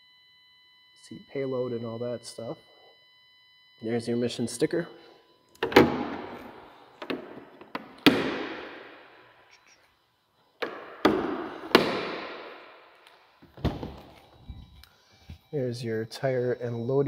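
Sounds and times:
sheet metal bangs: 10.7 - 12.8.

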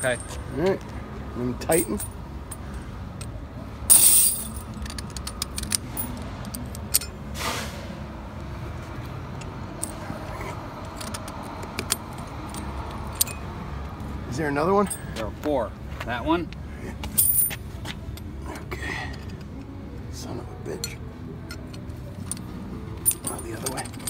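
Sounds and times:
chain links clinking and rattling: 1.6 - 7.2, 9.4 - 13.6, 14.8 - 15.2, 17.0 - 19.6, 20.7 - 24.0.

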